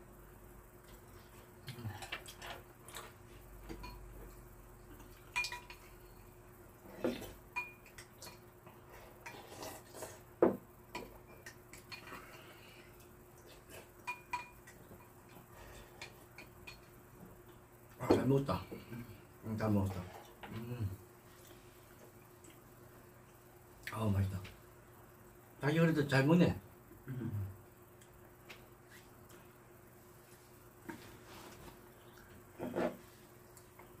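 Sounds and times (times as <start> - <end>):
utensils clinking on ceramic bowl: 5.3 - 5.9.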